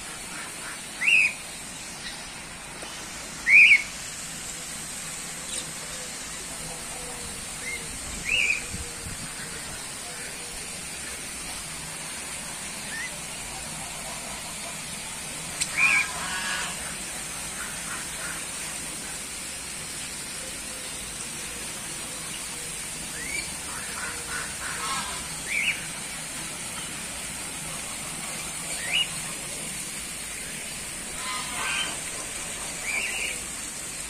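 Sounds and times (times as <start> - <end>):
ducks quacking: 0.0 - 1.4, 15.5 - 19.0, 23.5 - 25.8, 31.0 - 33.4
steady background hiss: 0.0 - 34.0.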